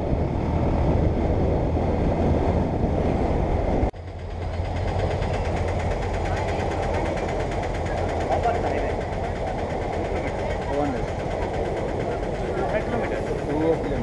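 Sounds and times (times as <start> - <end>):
train passing: 0.0 - 14.0
motorcycles idling: 4.0 - 14.0.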